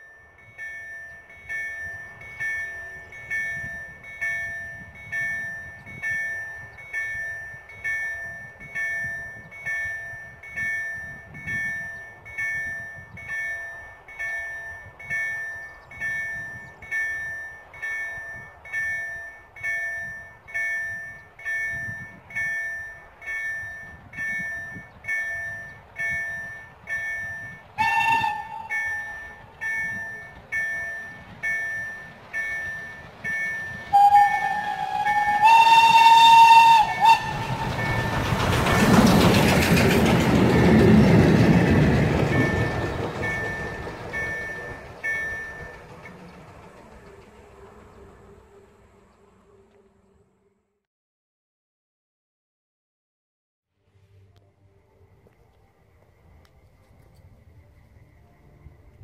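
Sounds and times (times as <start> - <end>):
level crossing warning bell: 0.0 - 48.3
train wheel noise: 0.0 - 50.2
locomotive exhaust: 1.1 - 50.4
steam locomotive whistle: 27.4 - 30.4, 32.5 - 39.1.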